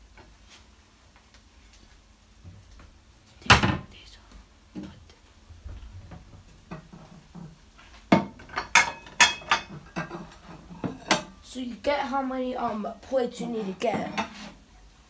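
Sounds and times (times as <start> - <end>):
ceramic plates clattering: 8.2 - 11.3.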